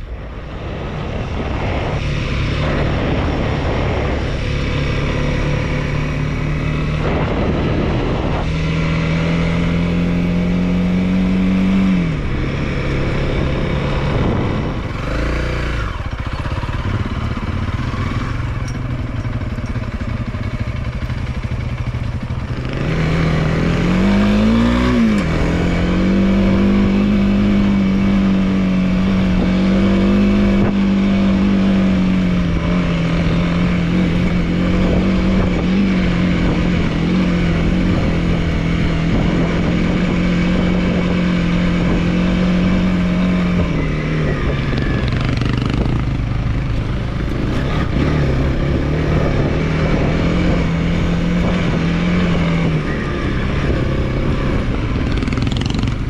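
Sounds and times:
motorcycle engine running: 0.0 - 56.0.

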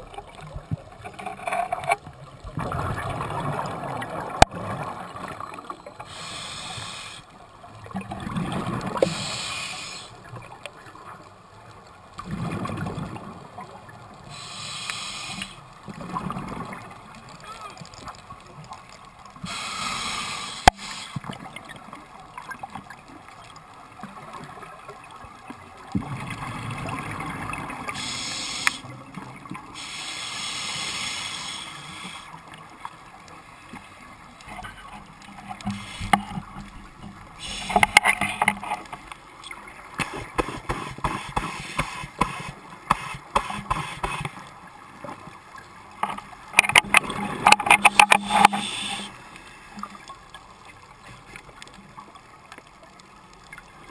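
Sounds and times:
exhaled bubbles gurgling: 2.0 - 11.1, 25.8 - 32.2, 46.1 - 49.2
regulator hiss on inhalation: 6.0 - 7.3, 9.0 - 10.2, 14.3 - 15.6, 19.4 - 21.3, 27.9 - 28.9, 29.8 - 32.4, 35.6 - 36.4, 37.4 - 38.1, 40.0 - 44.4, 47.7 - 49.7.

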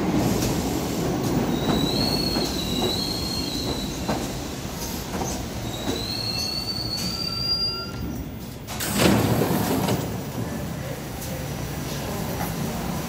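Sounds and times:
subway train wheel squeal: 0.0 - 9.0
subway train running rumble: 0.0 - 13.0
train doors sliding open: 0.0 - 13.0.

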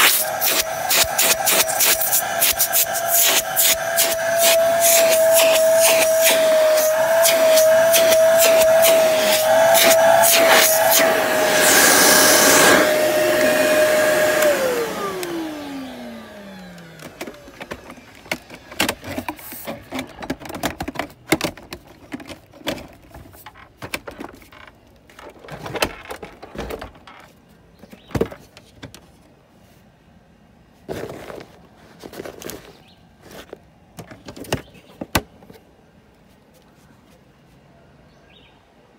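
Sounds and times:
vacuum motor spinning down: 0.0 - 18.8
vacuum cleaner running: 0.0 - 20.3.

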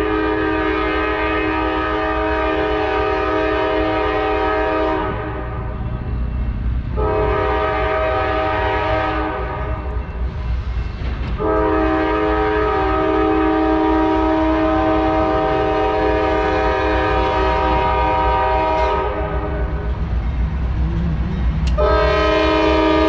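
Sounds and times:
locomotive air horn blasts: 0.0 - 5.7, 6.9 - 9.8, 11.4 - 19.9, 21.7 - 23.0
low rumble of passing train: 0.0 - 23.0.

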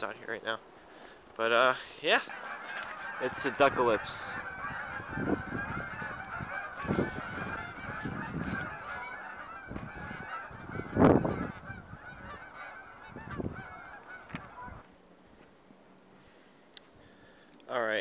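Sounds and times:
geese honking: 1.0 - 14.9.

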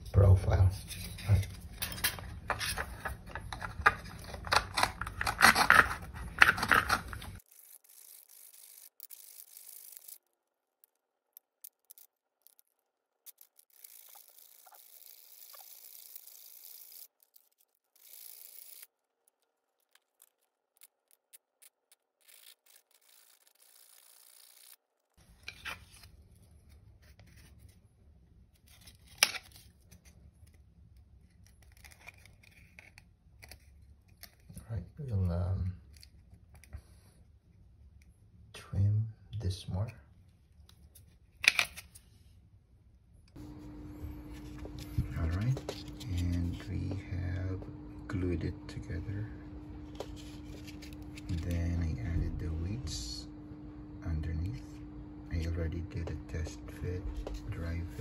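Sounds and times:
hacksaw blade rasping plastic: 2.5 - 7.4.

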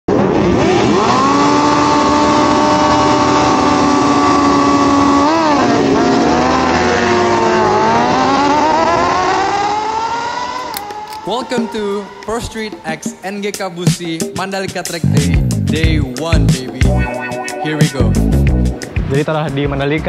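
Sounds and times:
motorcycle engine revving: 0.1 - 12.4.

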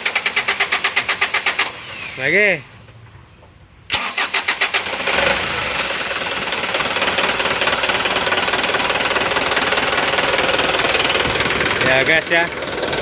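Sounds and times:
diesel engine clattering: 3.9 - 13.0.

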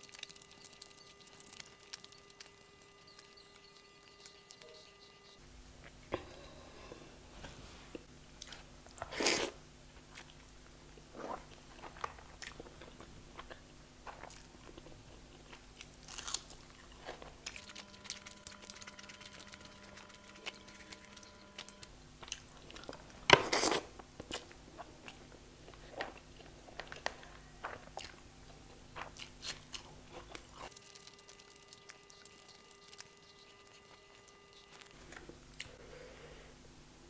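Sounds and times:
person chewing and smacking: 0.0 - 6.0, 11.2 - 35.8.

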